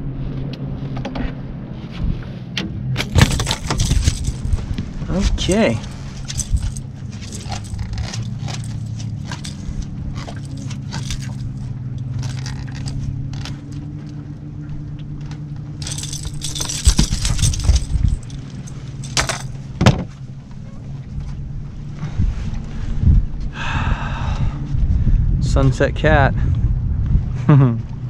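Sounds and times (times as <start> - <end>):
low motor hum: 0.0 - 25.4, 26.3 - 28.0
pliers and hooks clicking: 3.0 - 4.8, 5.8 - 13.6, 15.8 - 19.5.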